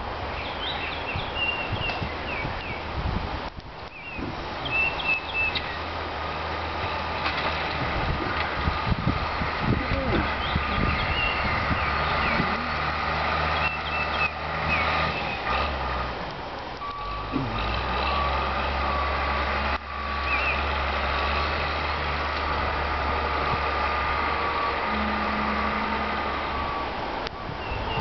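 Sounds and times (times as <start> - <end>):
birds chirping: 0.3 - 2.9, 3.8 - 6.0, 8.7 - 16.0, 16.8 - 27.0, 27.6 - 28.0
heavy machinery engine running: 5.8 - 28.0
backup alarm beeping: 16.8 - 19.2, 24.5 - 27.6.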